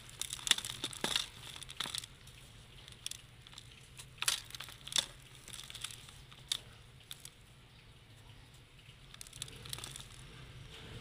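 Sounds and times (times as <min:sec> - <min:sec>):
dry cement crumbled by hand: 0:00.0 - 0:07.4, 0:09.0 - 0:10.4.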